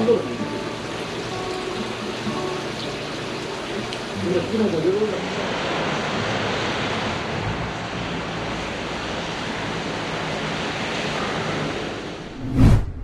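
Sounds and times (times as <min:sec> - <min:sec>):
steady rushing noise: 0:05.3 - 0:13.0
loud whoosh: 0:12.2 - 0:13.0.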